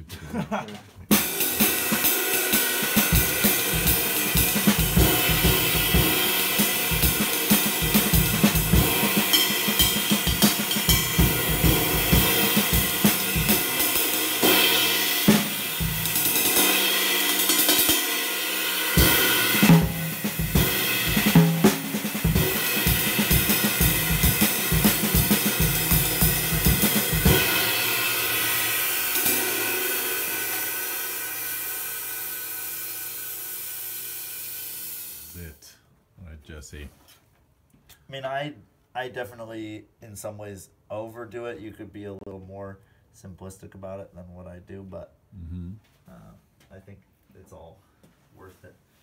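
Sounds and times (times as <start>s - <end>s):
drum strokes: 1.1s - 35.4s
ride cymbal pattern: 1.1s - 35.4s.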